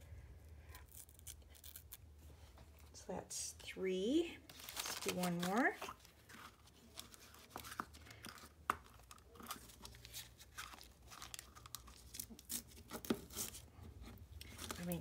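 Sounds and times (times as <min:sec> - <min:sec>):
paper tearing and rustling: 0:04.5 - 0:07.9.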